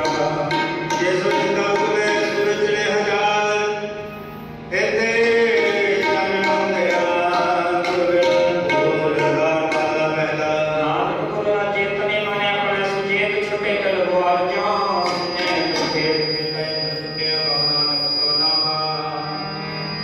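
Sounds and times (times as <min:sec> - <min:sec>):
harmonium: 0:00.0 - 0:20.0
tabla strokes: 0:04.9 - 0:10.4, 0:14.8 - 0:18.3.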